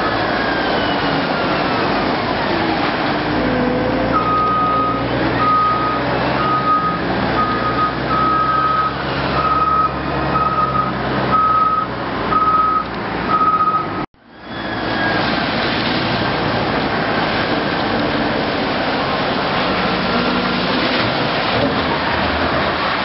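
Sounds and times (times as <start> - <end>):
heavy diesel machinery running: 0.0 - 23.0
reversing alarm beeping: 4.1 - 15.2.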